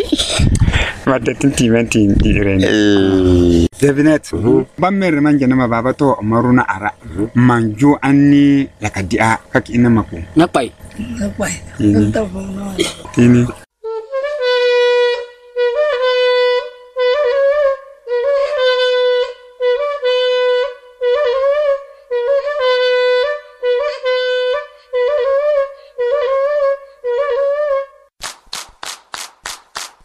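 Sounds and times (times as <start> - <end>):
wind instrument playing a call: 10.2 - 28.0
scratchy percussion: 28.2 - 30.0.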